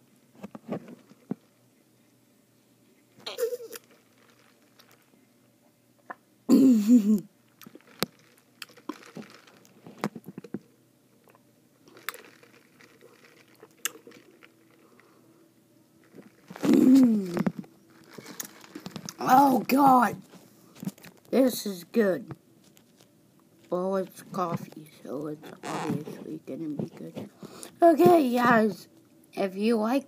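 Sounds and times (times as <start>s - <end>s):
person humming while tasting: 16.6s - 17.6s.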